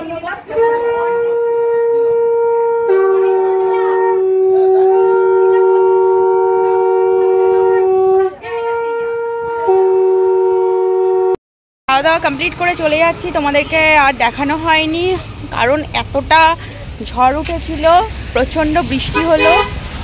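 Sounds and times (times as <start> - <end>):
high conch shell blast: 0.5 - 11.4
low conch shell blast: 0.5 - 11.4.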